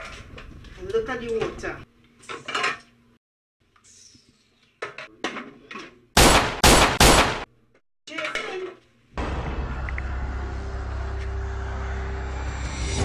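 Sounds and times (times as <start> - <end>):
dishes clattering in a metal sink: 2.3 - 2.9.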